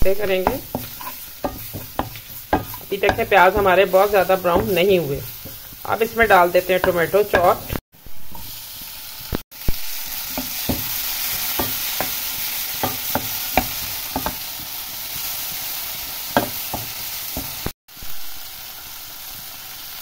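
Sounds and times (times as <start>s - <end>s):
vegetables sizzling in oil: 0.0s - 20.0s
spatula scraping a pan: 0.2s - 8.6s, 10.1s - 17.7s.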